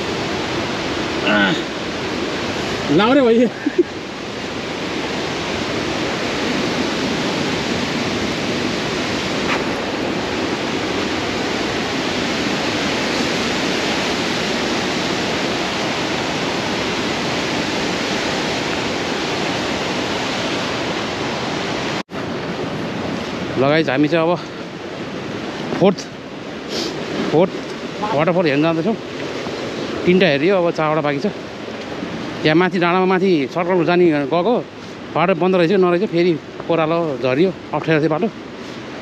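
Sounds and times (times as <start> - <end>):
waterfall rushing: 0.0 - 39.0.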